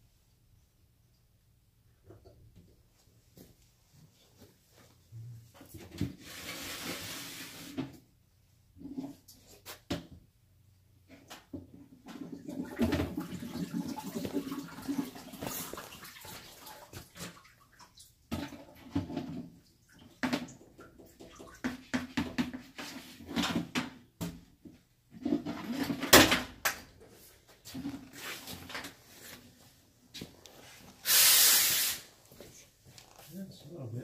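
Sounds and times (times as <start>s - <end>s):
water splashing and sloshing: 12.0s - 22.3s.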